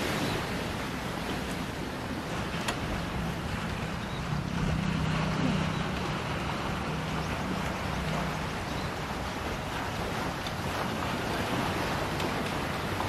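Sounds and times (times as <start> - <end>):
strong wind: 0.0 - 13.0
waves against shore: 0.0 - 13.0
low steady drone: 2.0 - 10.3.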